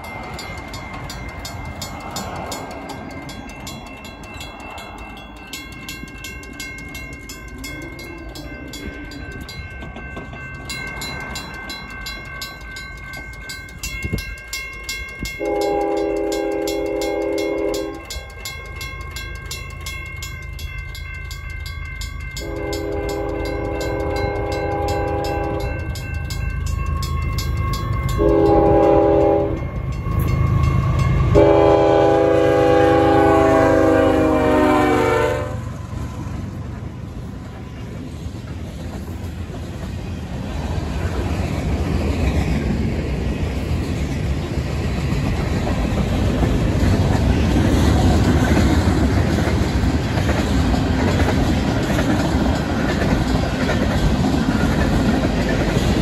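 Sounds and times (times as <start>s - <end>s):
freight cars rumbling and clacking: 0.0s - 33.2s, 35.6s - 56.0s
crossing bells ringing: 0.0s - 56.0s
locomotive air horn blasts: 15.4s - 18.1s, 22.4s - 25.8s, 28.2s - 29.7s, 30.8s - 35.8s.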